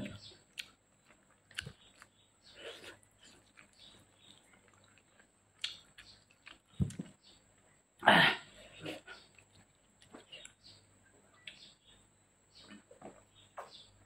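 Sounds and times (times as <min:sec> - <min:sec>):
person chewing and sucking food: 0:00.2 - 0:07.1.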